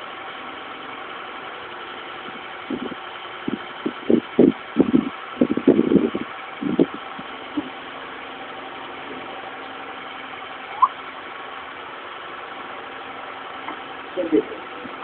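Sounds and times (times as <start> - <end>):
short rising squeak: 10.7 - 11.0.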